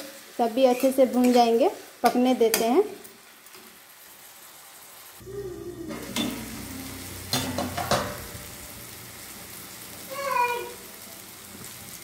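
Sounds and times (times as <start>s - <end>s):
masala sizzling in oil: 0.0s - 12.0s
spoon stirring and scraping pan: 0.6s - 2.7s
spoon knocking on pan: 7.3s - 8.4s.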